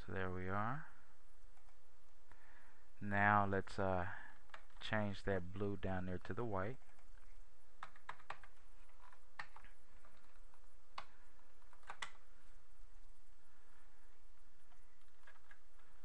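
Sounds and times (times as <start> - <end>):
faint steady hum: 0.0 - 16.0
keyboard keystrokes: 7.8 - 12.2, 14.7 - 15.6.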